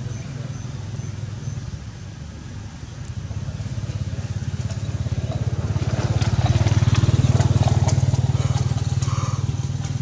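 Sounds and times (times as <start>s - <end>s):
small engine running: 3.3s - 10.0s.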